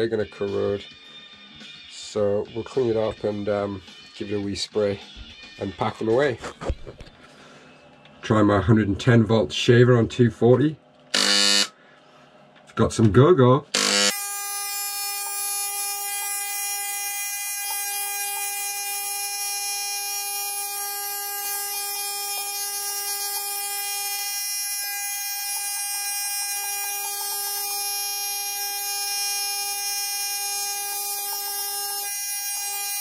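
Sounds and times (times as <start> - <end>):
electric shaver buzzing: 11.1 - 11.7, 13.7 - 33.0.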